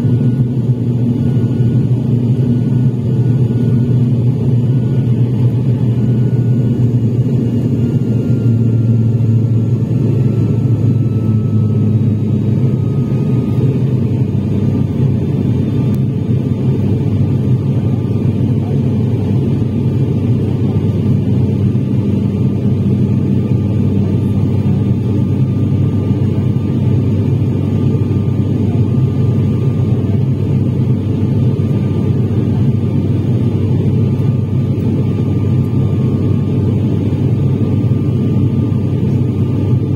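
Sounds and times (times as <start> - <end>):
faint engine whine: 0.0 - 39.9
turboprop cabin drone: 0.0 - 39.9.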